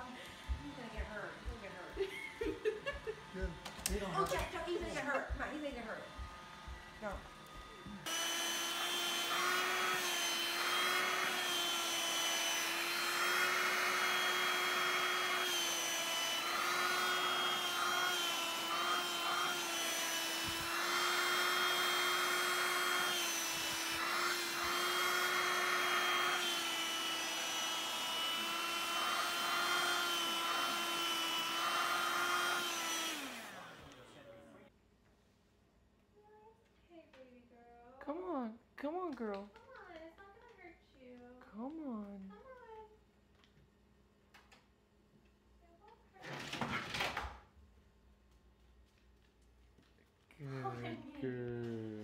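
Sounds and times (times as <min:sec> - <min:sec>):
handheld vacuum cleaner running: 0:00.0 - 0:34.5
vacuum motor winding down: 0:00.0 - 0:34.6.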